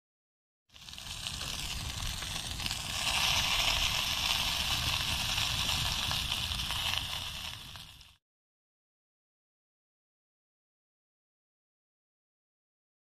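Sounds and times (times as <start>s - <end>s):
sauce sizzling and bubbling: 0.7s - 8.2s.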